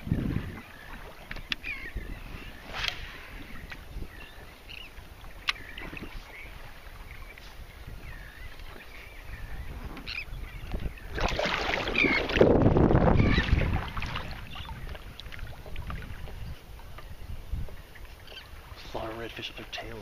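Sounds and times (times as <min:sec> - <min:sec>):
wind rumble on microphone: 0:00.0 - 0:19.0
water around kayak: 0:00.0 - 0:20.0
faint bird calls: 0:00.4 - 0:11.2, 0:11.8 - 0:12.4, 0:16.5 - 0:19.1.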